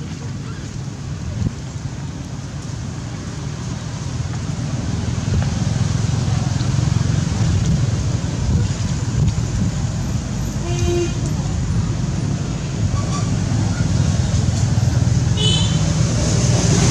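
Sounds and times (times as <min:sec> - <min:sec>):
wind buffeting microphone: 0:00.0 - 0:10.4.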